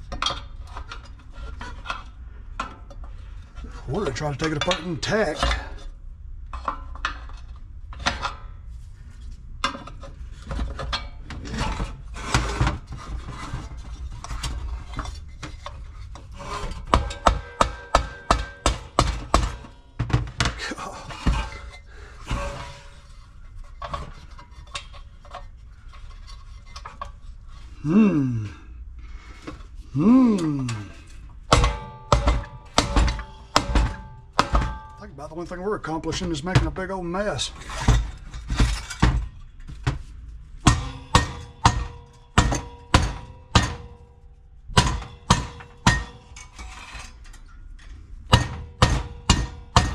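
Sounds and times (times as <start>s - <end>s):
metal parts scraping: 37.3s - 39.8s, 46.2s - 48.1s.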